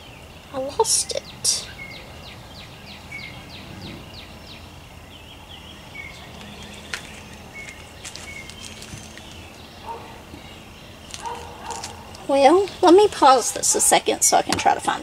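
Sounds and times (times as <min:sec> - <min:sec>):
small birds chirping: 0:00.0 - 0:15.0.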